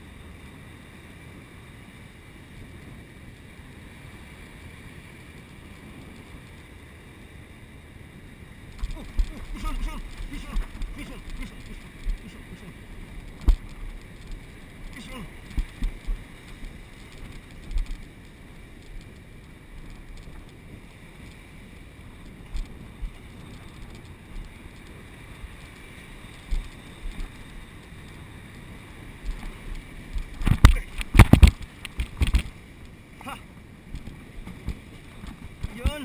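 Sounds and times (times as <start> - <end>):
surf surging over rocks: 0.0 - 36.0
wind buffeting microphone: 8.2 - 36.0
water splashing around camera: 8.6 - 36.0.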